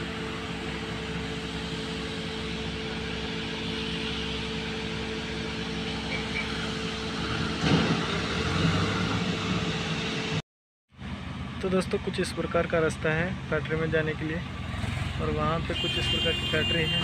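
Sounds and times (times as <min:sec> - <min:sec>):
tractor diesel engine running: 0:00.0 - 0:10.4.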